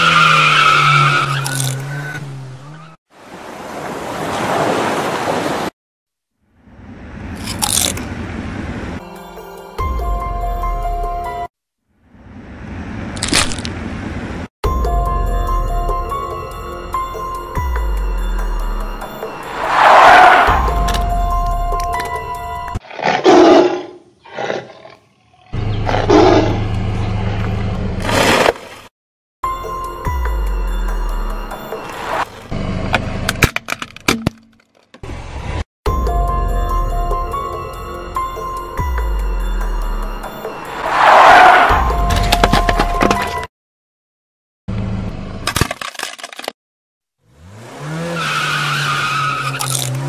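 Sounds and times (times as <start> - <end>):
crunching with sharp cracks: 1.4 - 1.9, 7.4 - 8.0, 13.2 - 13.8, 49.4 - 50.0
truck engine drone: 6.4 - 10.9, 25.5 - 28.4, 29.7 - 33.3
tiger roaring: 22.8 - 26.6
car engine revving: 47.3 - 50.0.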